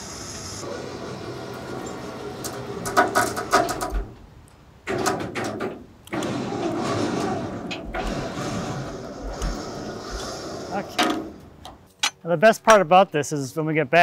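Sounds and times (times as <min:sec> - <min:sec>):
electric winch humming: 0:00.0 - 0:03.9, 0:06.1 - 0:11.6.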